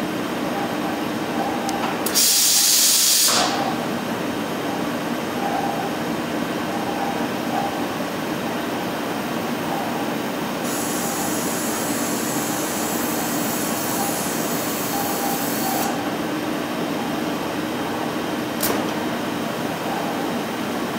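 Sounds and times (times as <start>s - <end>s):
sharp click: 18.6s - 19.0s.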